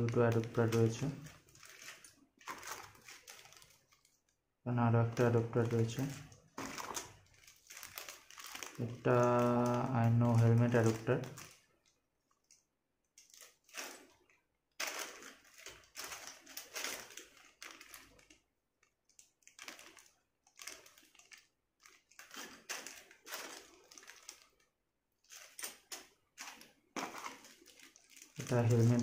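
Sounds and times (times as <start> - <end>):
plastic bag crinkling: 0.0 - 29.0.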